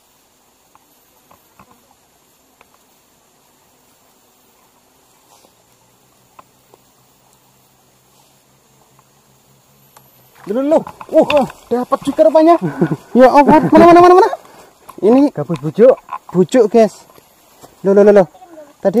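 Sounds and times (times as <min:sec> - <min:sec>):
insect buzzing: 0:00.0 - 0:19.0.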